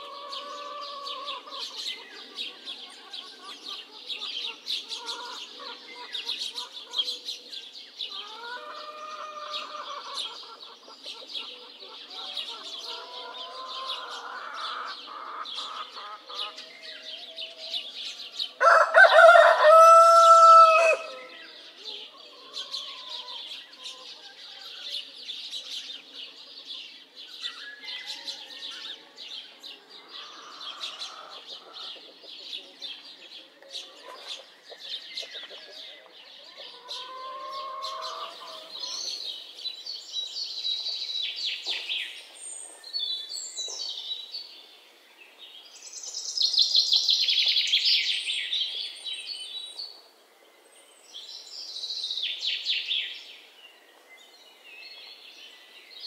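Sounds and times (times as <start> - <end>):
small birds chirping: 0.0 - 18.8, 19.4 - 56.0
hens clucking: 8.2 - 16.6
rooster crowing: 18.6 - 21.3.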